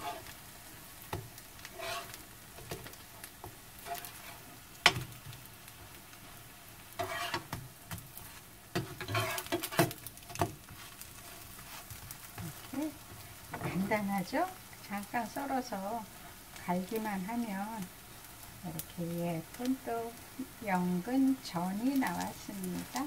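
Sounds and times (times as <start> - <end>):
metal spatula scraping a pan: 0.0 - 0.4, 1.6 - 5.1, 6.9 - 12.7
pancakes sizzling in oil: 0.0 - 23.0.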